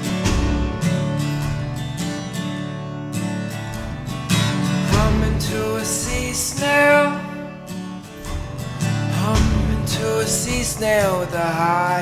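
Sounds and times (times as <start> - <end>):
acoustic folk song: 0.0 - 12.0
strummed acoustic guitar: 0.0 - 12.0.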